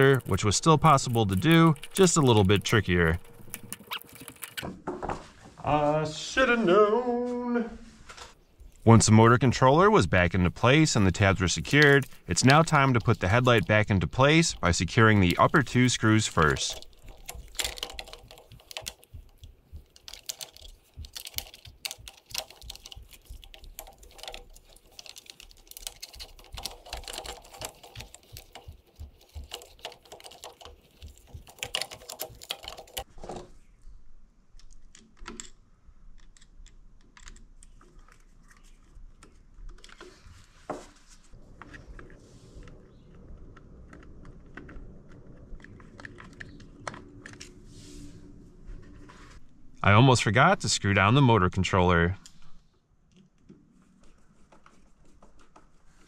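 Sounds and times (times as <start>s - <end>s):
plastic parts clicking: 0.0s - 4.7s, 10.6s - 33.1s.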